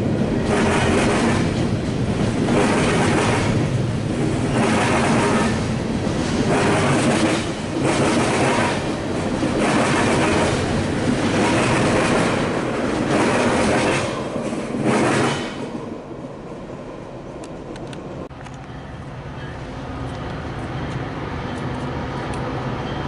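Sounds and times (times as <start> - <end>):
freight train wheels clattering: 0.2 - 15.8.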